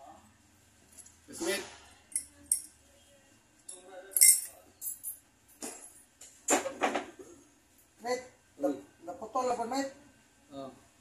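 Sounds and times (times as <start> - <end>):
metal bangle clinking in glass: 2.1 - 2.8, 3.7 - 6.1.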